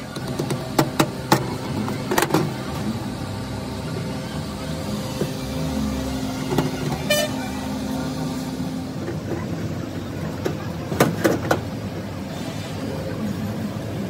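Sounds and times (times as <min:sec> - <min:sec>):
street traffic hum: 0:00.0 - 0:14.0
high-pitched toot: 0:05.5 - 0:07.9.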